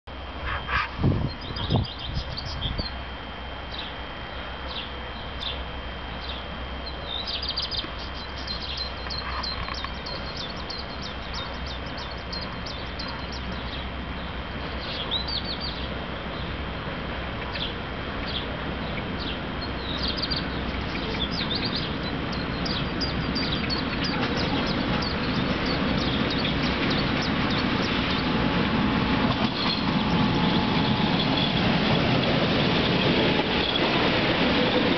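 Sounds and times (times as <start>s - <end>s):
freight train rumbling: 0.1s - 34.9s
songbirds chirping: 3.7s - 16.6s, 17.4s - 28.3s.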